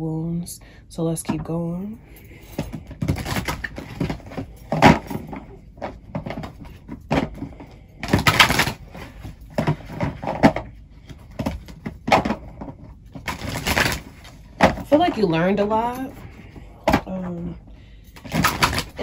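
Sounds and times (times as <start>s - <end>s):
rustles and knocks of handled objects: 1.3s - 19.0s.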